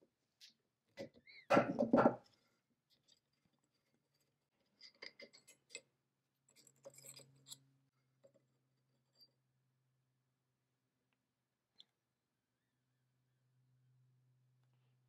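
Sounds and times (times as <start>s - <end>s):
ceramic crucible clicking and rattling: 2.9s - 9.4s.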